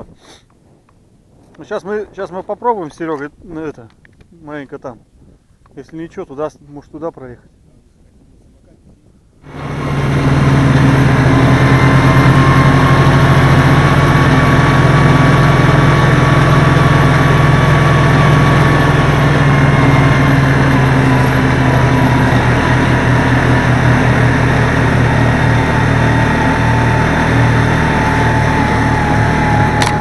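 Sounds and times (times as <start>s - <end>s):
snowmobile engine running: 9.4s - 30.0s.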